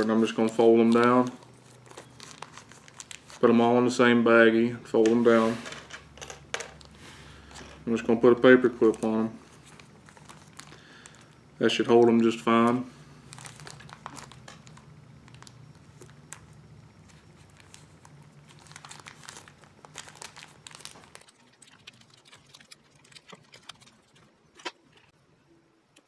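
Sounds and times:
plastic bag crinkling: 0.0s - 3.6s, 8.6s - 11.4s, 13.2s - 24.2s.

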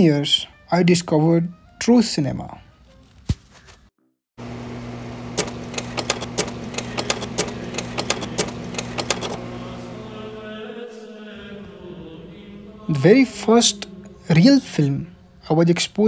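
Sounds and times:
steady electrical hum: 4.4s - 10.8s
rapid mechanical clicking: 5.3s - 9.4s.

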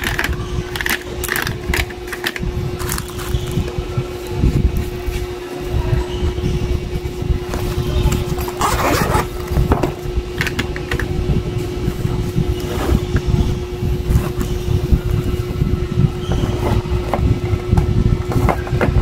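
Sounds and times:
plastic pens clicking and tapping: 0.0s - 3.3s, 10.4s - 11.1s
low rumble with hum: 0.0s - 19.0s.

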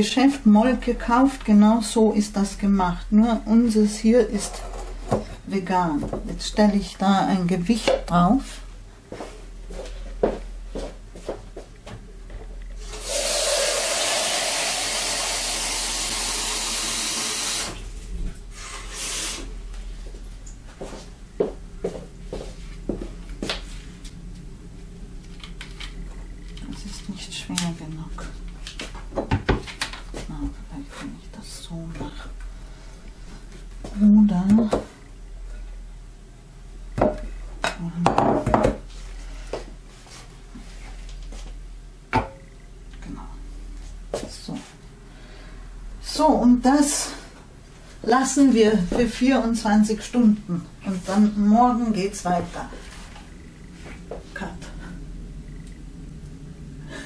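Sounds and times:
water tap running: 12.8s - 19.5s.

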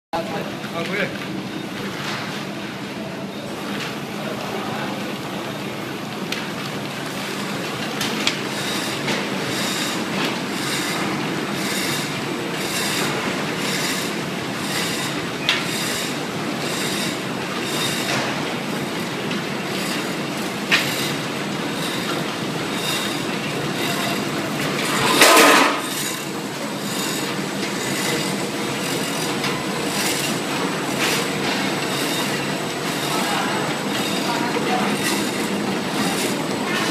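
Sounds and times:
machine squeal: 8.4s - 36.9s.

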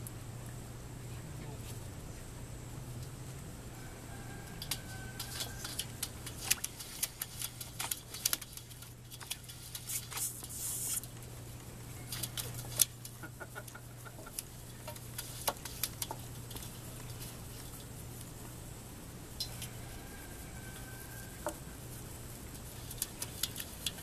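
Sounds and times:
puppies lapping at metal pans: 4.6s - 18.0s, 22.4s - 24.0s
brief hiss: 9.9s - 11.1s.

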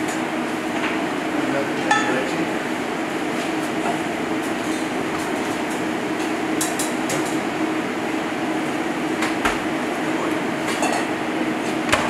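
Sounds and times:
kitchen ventilation hum: 0.0s - 12.0s.

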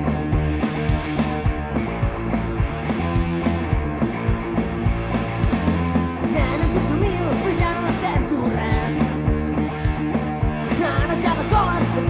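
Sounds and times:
rock band playing: 0.0s - 12.0s
man singing: 6.3s - 9.1s, 10.7s - 12.0s.

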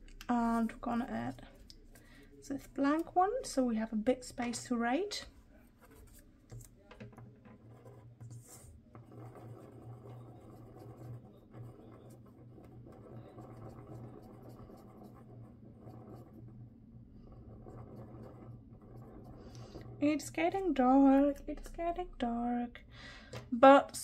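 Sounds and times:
glue pen scratching on paper: 7.5s - 21.4s
low steady hum: 10.0s - 24.0s.

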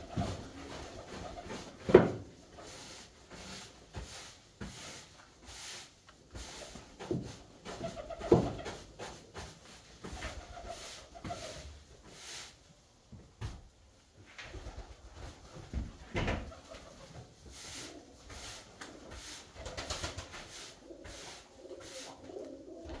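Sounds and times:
pigeons cooing: 20.5s - 23.0s.

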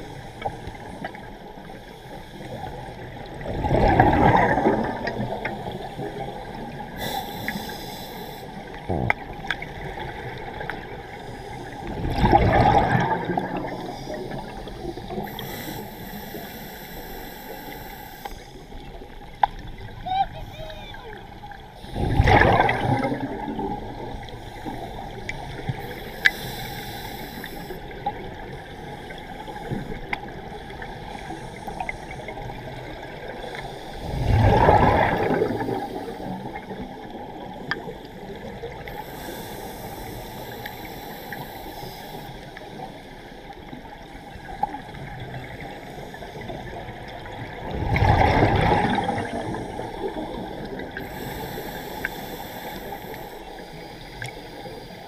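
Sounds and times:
steady underwater hiss: 0.0s - 55.0s
scuba diver exhaling bubbles: 3.4s - 7.8s, 11.8s - 16.4s, 21.8s - 28.3s, 32.4s - 37.6s, 46.4s - 53.2s
faint clicks: 18.2s - 19.7s, 37.6s - 38.0s, 54.1s - 54.4s.

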